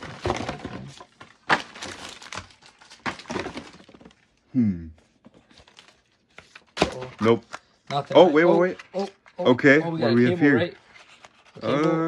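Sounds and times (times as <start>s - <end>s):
plastic bags crinkling: 0.0s - 4.2s.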